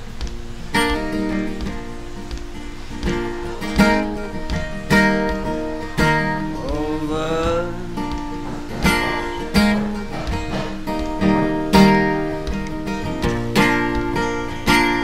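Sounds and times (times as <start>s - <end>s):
acoustic guitar strumming: 0.0s - 15.0s
harmonica melody: 2.4s - 15.0s.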